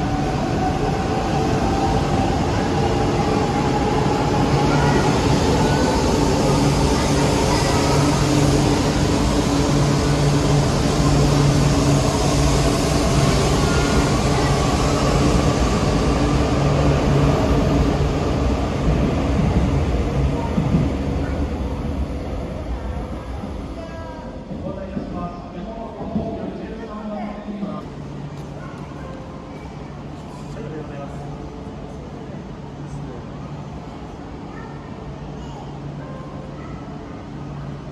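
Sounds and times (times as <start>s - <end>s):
train rumbling: 0.0s - 37.9s.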